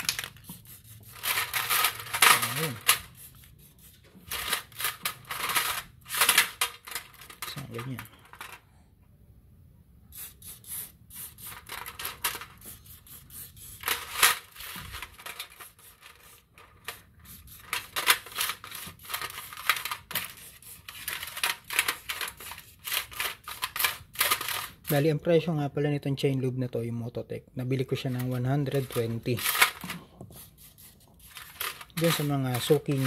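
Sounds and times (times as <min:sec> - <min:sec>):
aerosol spray hissing: 0:10.1 - 0:11.6, 0:12.6 - 0:13.8.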